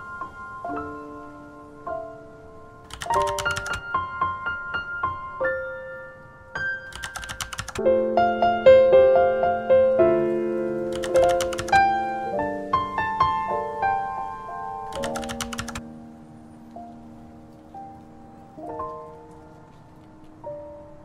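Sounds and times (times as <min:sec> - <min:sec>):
plucked piano-like melody: 0:00.0 - 0:21.0
fast clicks: 0:02.9 - 0:03.8, 0:06.9 - 0:07.8, 0:10.8 - 0:11.9, 0:14.9 - 0:15.8.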